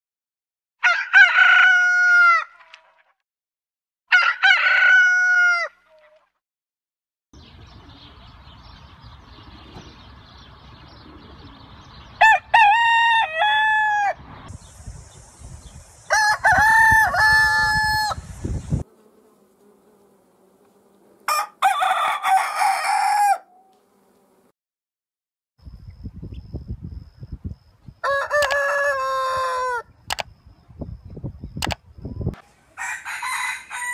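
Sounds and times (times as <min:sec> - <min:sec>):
roosters crowing: 0:00.8 - 0:02.6, 0:04.1 - 0:05.8, 0:12.2 - 0:14.5, 0:16.0 - 0:18.8, 0:21.2 - 0:23.7, 0:28.0 - 0:30.0, 0:32.4 - 0:33.9.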